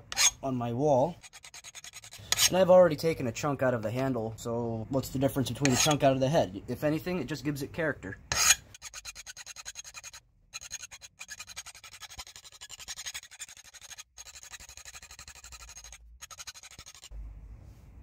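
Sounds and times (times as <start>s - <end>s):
hand file rasping on steel: 0.1s - 0.4s, 1.1s - 2.6s, 5.6s - 6.0s, 8.3s - 17.1s.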